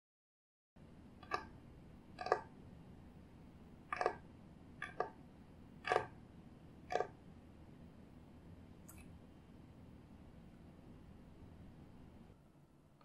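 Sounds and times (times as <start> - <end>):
fingertips tapping on wooden board: 3.9 - 4.2, 4.8 - 5.2, 5.8 - 6.2.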